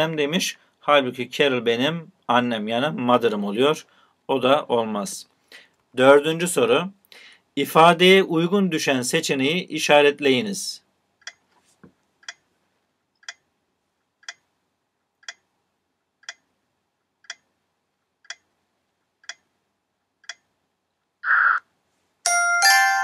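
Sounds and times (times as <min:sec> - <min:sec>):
bright chime: 0:22.3 - 0:23.0.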